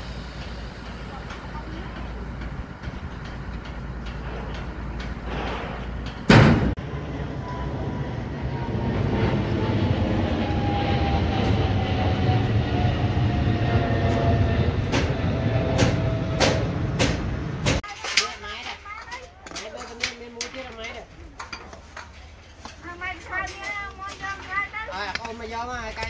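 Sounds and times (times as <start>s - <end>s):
dump truck diesel engine running: 0.0s - 17.8s
jet airliner passing overhead: 5.3s - 17.8s
sharp knock: 6.3s - 6.8s.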